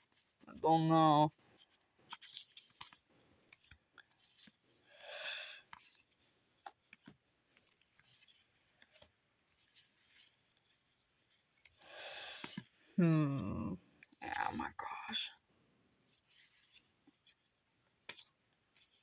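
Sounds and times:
trading cards shuffling: 1.6s - 4.7s, 16.2s - 19.0s.

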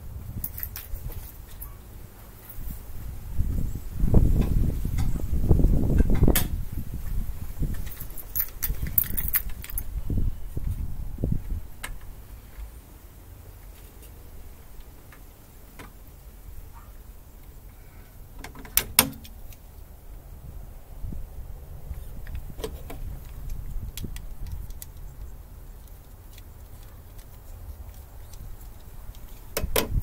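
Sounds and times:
wind rumble on microphone: 0.0s - 12.5s, 19.8s - 25.8s, 27.4s - 30.0s
metallic clicks and rattles: 7.7s - 9.9s.

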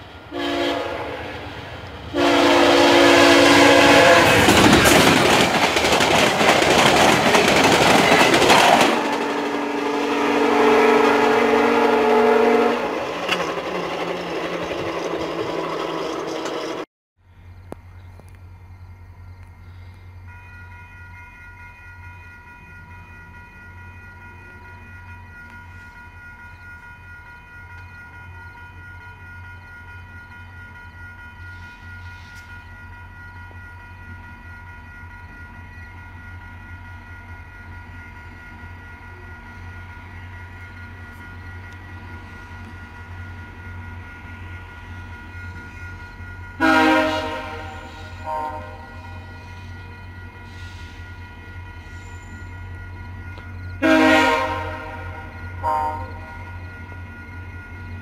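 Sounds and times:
train low hum: 0.0s - 58.0s
locomotive horn blasts: 0.3s - 1.4s, 2.1s - 4.6s, 9.0s - 13.2s, 46.6s - 49.8s, 53.4s - 56.6s.

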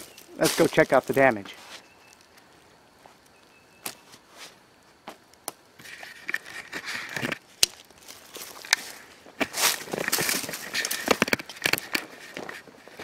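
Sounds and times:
footsteps on gravel: 0.0s - 2.2s, 5.8s - 13.0s.

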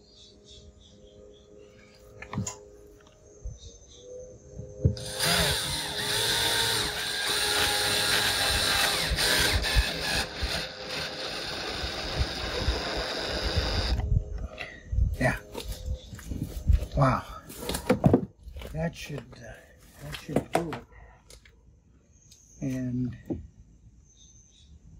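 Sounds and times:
cordless drill drilling into wood: 5.0s - 14.0s.

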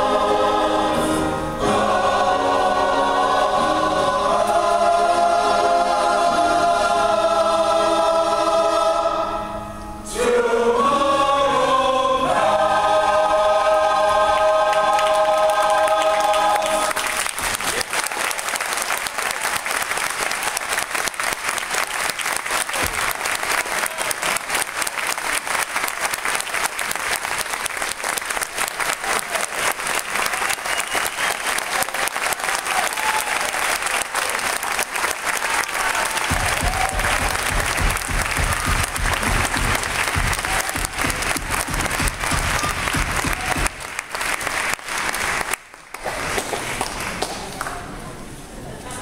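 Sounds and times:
audience applauding: 14.2s - 48.1s.

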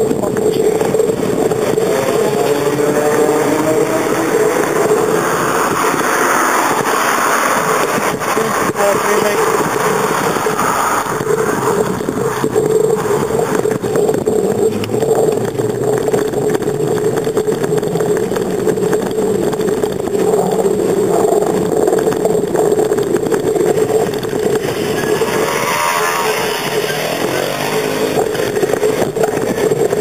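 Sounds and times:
bicycle rolling rattle: 0.0s - 30.0s
quad bike passing: 0.0s - 30.0s
steady hum: 0.0s - 30.0s
wind: 0.0s - 30.0s
motor scooter passing: 0.5s - 22.5s, 23.1s - 30.0s.

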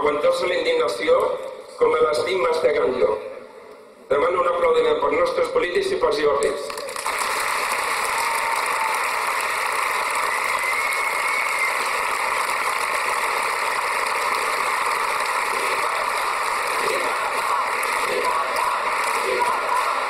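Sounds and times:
large crowd applauding: 6.7s - 20.0s.

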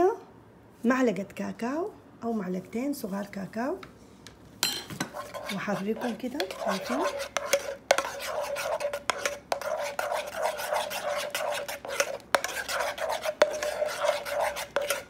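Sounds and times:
spoon scraping saucepan: 4.6s - 15.0s.

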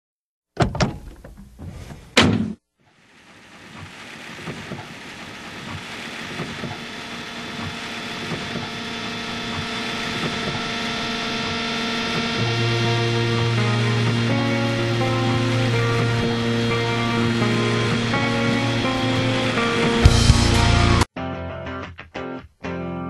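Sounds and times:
music track intro: 9.6s - 21.9s.

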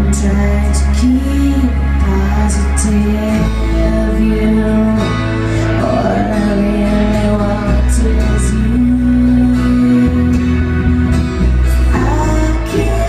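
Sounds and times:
bass line: 0.0s - 13.0s
electric guitar: 0.0s - 13.0s
strummed acoustic guitar: 0.0s - 13.0s.

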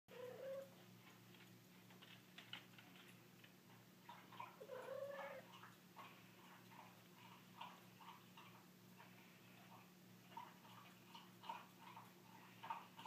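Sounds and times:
cat yowling: 0.1s - 0.7s, 4.6s - 5.5s.

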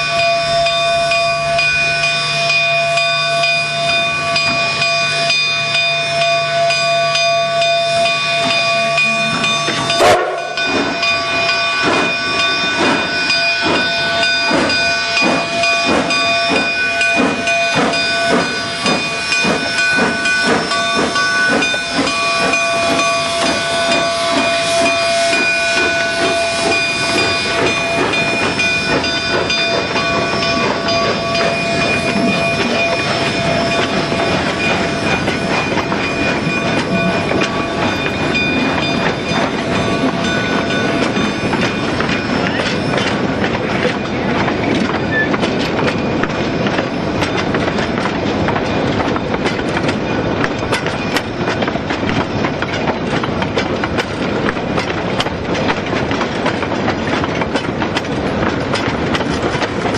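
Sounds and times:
steam locomotive exhaust chuffing: 0.0s - 59.9s
steam hissing: 0.2s - 43.4s.

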